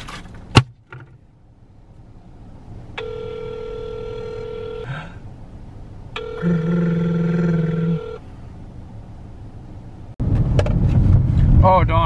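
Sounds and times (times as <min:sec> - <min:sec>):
car driving rumble: 0:00.0 - 0:12.0
phone tone on speaker: 0:03.0 - 0:04.9, 0:06.2 - 0:08.2.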